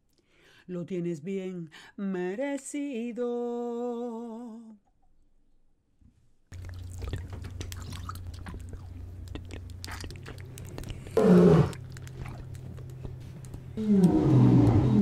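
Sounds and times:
close clicking and crackling: 6.6 - 15.0
steady low hum: 6.6 - 15.0.

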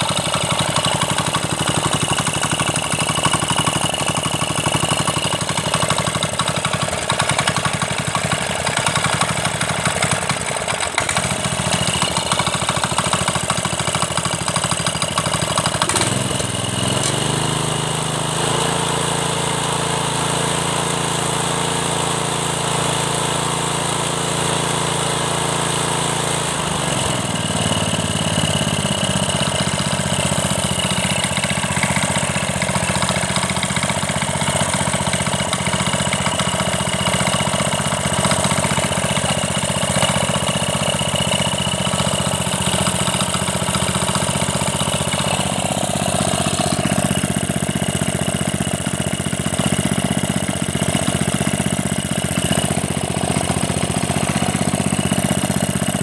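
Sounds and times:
power trowel engine running: 0.0 - 56.0.

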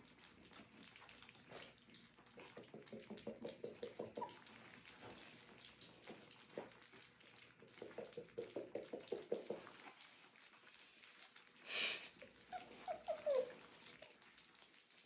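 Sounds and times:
puppies lapping and smacking: 0.0 - 15.0
puppy whimpers: 12.4 - 14.2.

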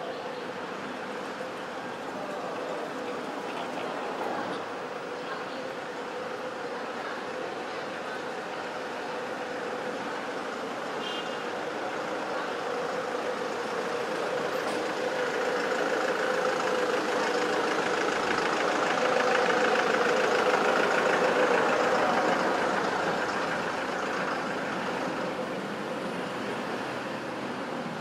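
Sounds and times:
vehicle engine passing: 13.0 - 27.8.

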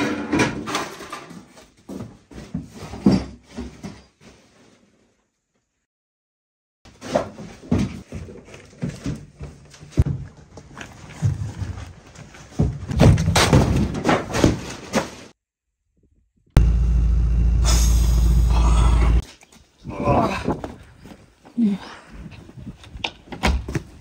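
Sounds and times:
thuds of objects moved: 6.9 - 15.4
steady low hum: 16.6 - 19.2.

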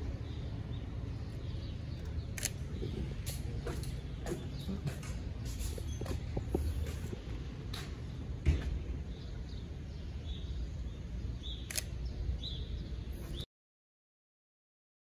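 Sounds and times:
sharp click: 2.4 - 2.6, 11.6 - 11.9
thump: 8.4 - 8.8.

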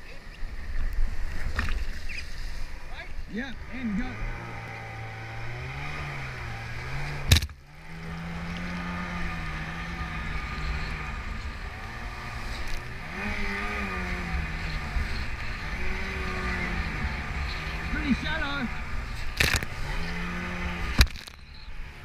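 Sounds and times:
wind and water rushing: 0.0 - 21.1
outboard motor running hard: 2.6 - 22.0.

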